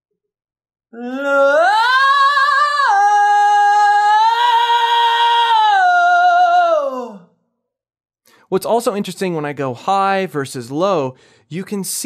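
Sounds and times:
man singing high sustained vowel: 1.0s - 7.3s.

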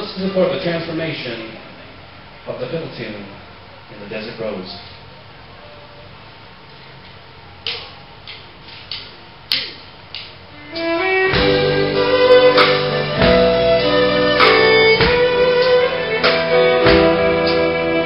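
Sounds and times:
drums: 7.8s - 18.0s
fiddle playing sustained notes: 10.6s - 18.0s.

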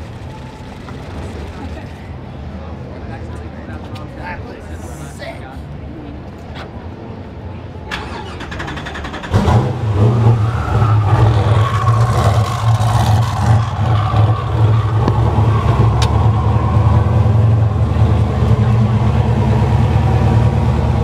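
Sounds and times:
car engine idling loudly: 0.0s - 2.0s, 11.0s - 21.0s.

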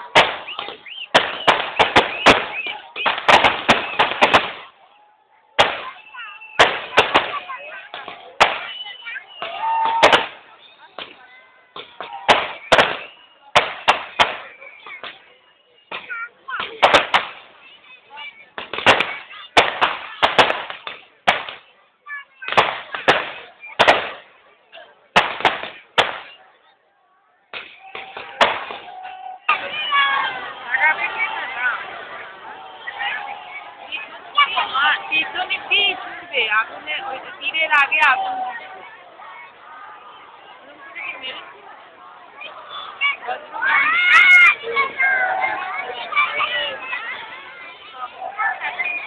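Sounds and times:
firecrackers bursting: 0.0s - 4.8s, 5.6s - 24.4s, 25.1s - 26.4s, 27.5s - 39.0s
crowd voices: 0.0s - 49.0s.

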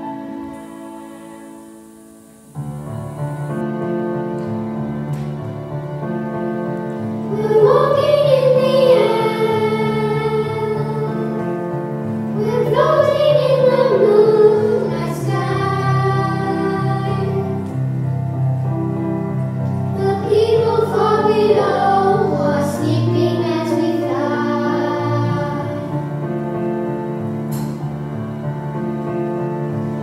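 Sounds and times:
instrumental accompaniment: 0.0s - 30.0s
girls singing into microphones: 7.3s - 11.7s, 12.4s - 17.8s, 19.9s - 26.1s.

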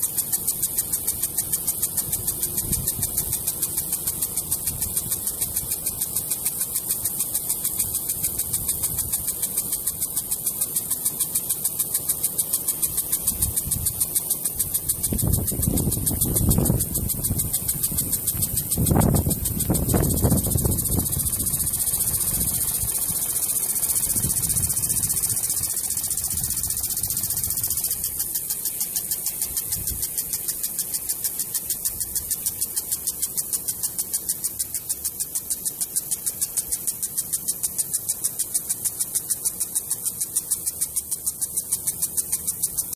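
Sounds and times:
sprinkler spraying water: 0.0s - 42.9s
sprinkler ticking: 0.0s - 42.9s.

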